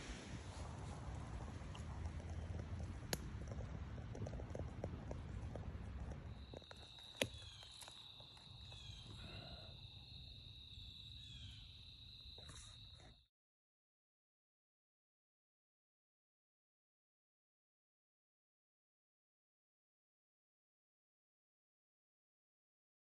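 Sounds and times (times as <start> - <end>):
faint chirps: 6.2 - 13.2
insect trill: 6.2 - 13.2.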